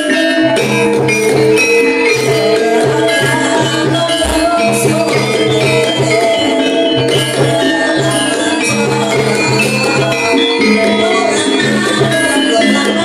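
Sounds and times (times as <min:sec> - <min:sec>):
gamelan music: 0:02.4 - 0:06.9.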